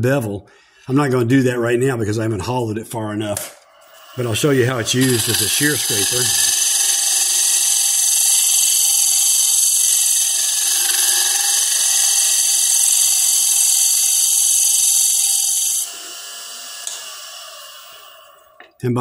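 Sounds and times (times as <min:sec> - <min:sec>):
lathe tool scraping wood hiss: 0:03.7 - 0:18.6.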